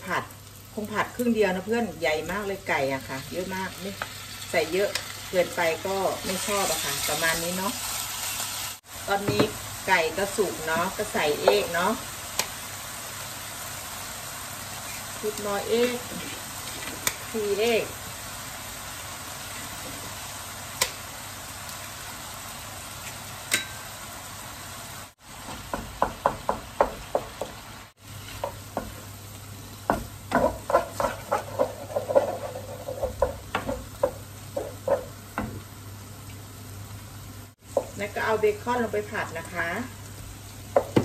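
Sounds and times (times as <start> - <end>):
eggs sizzling in a frying pan: 0.0 - 41.0
wooden spatula scraping a pan: 29.9 - 35.2.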